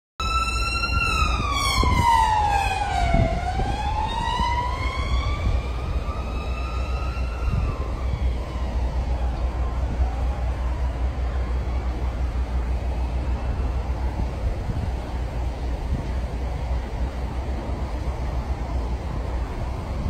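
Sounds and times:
emergency siren wailing: 0.2 - 20.0
steady low rumble: 0.2 - 20.0.

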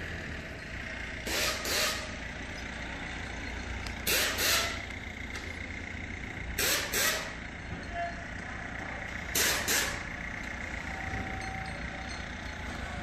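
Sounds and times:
short sharp air hisses: 1.3 - 2.2, 4.1 - 4.8, 9.4 - 10.0.

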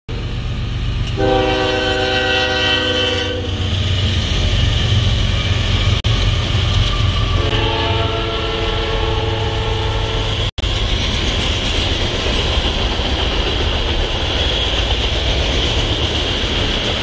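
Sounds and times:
train rumbling past: 0.1 - 17.0
locomotive air horn blasts: 1.2 - 3.7, 7.4 - 10.5.

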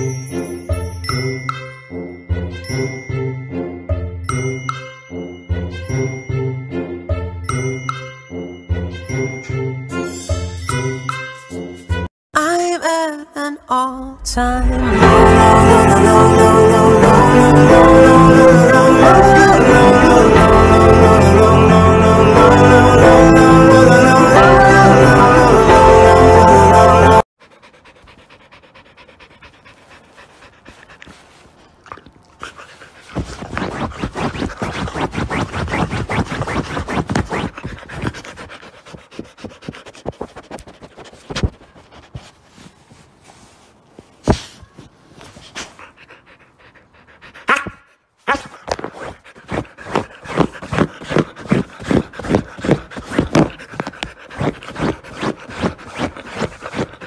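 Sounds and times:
dog panting: 27.4 - 57.0
rustling against phone: 40.1 - 45.8.

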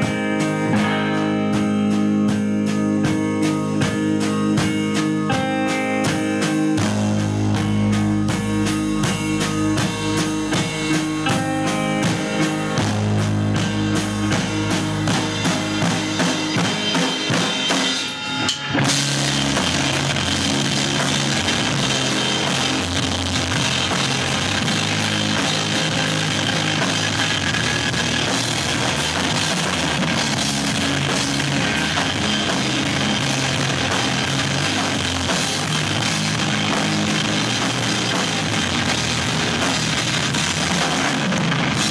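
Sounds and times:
live rock band: 0.0 - 41.9
cymbals crashing: 7.4 - 39.9.

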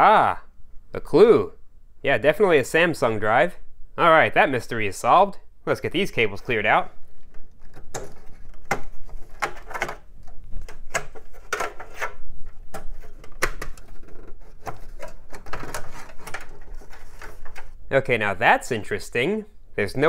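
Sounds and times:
plastic connectors clicking and rattling: 7.1 - 17.7.

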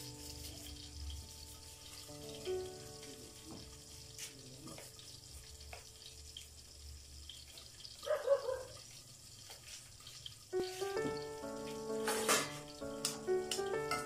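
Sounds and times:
background music: 0.0 - 4.1, 10.6 - 14.0
liquid gurgle: 0.0 - 14.0
liquid pouring into a pot: 0.0 - 14.0.

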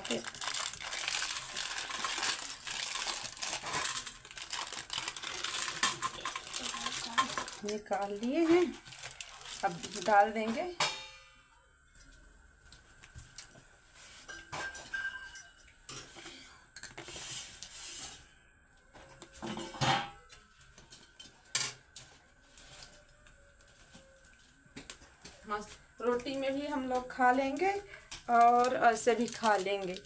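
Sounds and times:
steel kitchenware clinking: 14.2 - 16.2.

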